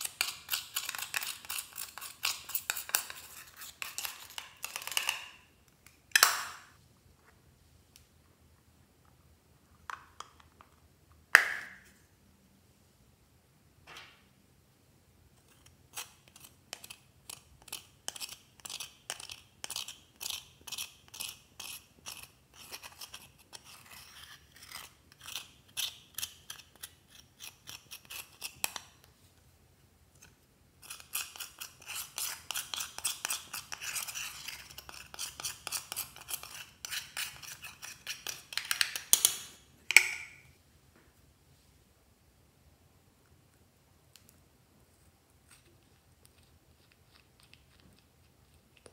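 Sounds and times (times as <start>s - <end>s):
metal tool scraping eyeshadow pan: 0.0s - 5.1s, 15.4s - 28.9s, 30.8s - 39.2s.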